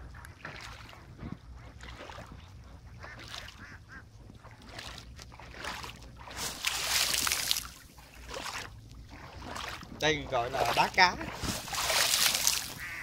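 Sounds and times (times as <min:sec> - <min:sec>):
water splashed by kicking: 0:00.0 - 0:02.4, 0:03.0 - 0:03.6, 0:04.3 - 0:13.0.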